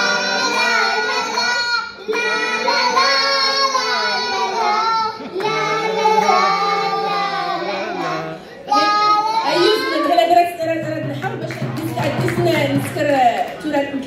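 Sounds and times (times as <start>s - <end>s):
children singing together: 0.0s - 10.0s.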